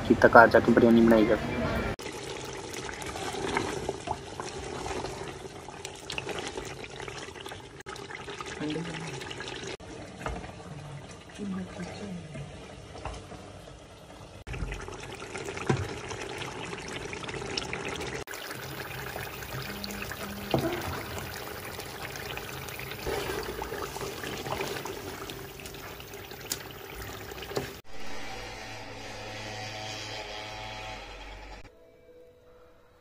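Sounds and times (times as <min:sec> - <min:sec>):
water splashing in a steel pot: 0:01.9 - 0:28.0
music: 0:28.0 - 0:33.0.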